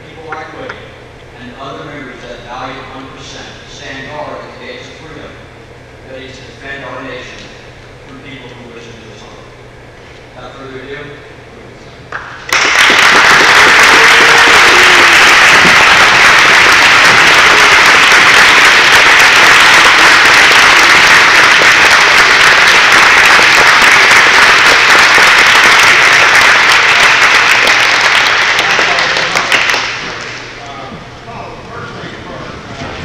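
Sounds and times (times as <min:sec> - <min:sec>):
audience applause: 0:12.4 - 0:30.4.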